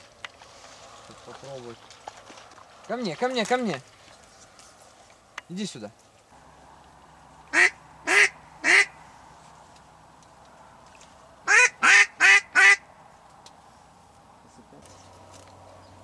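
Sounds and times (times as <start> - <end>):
duck quacking: 7.5 - 9.0, 11.5 - 12.8.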